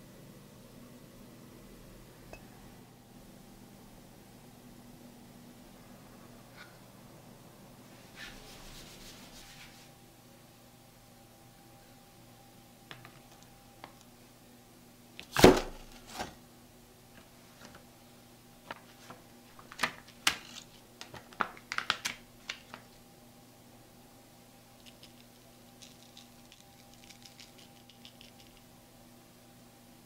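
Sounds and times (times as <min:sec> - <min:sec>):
parchment paper crackling: 0:18.7 - 0:23.0, 0:24.8 - 0:28.6.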